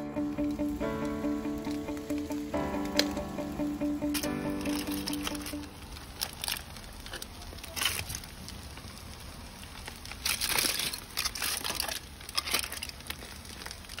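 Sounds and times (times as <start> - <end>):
aluminium foil crinkling: 4.2 - 14.0.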